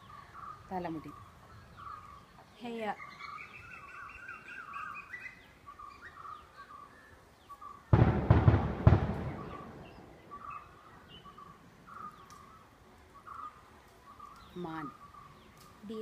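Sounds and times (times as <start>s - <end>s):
birds chirping: 0.0s - 16.0s
loud thumps: 7.9s - 10.0s.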